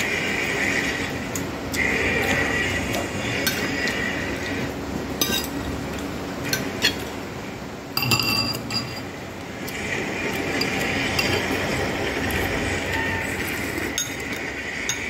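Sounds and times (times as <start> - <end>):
tableware clinking: 5.2 - 5.6, 8.0 - 9.1, 12.9 - 15.0.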